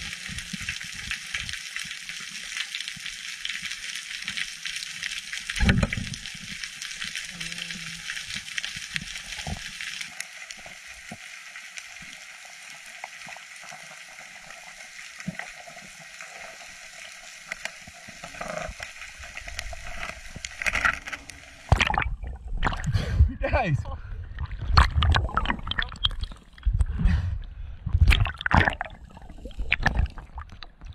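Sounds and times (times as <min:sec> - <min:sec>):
underwater crackling hiss: 0:00.0 - 0:21.9
rush of water: 0:17.5 - 0:23.8, 0:28.0 - 0:30.9
sharp underwater clicks: 0:18.4 - 0:22.9, 0:24.6 - 0:26.9.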